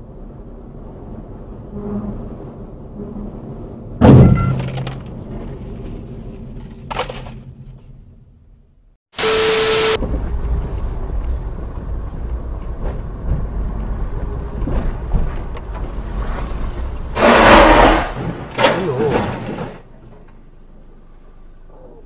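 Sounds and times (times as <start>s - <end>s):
car rumbling on rough lane: 10.0s - 22.0s
harsh horn bursts: 17.2s - 18.2s.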